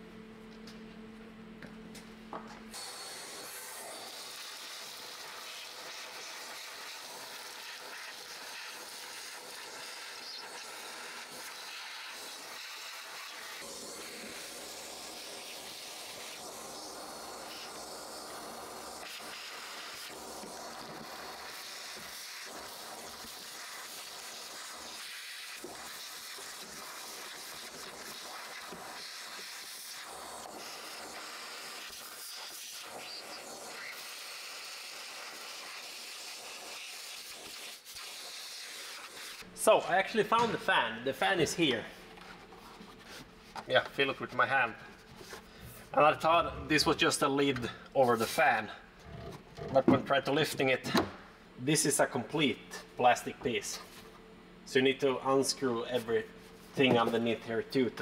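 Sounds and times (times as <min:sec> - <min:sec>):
ventilation fan blowing: 0:39.4 - 0:58.0.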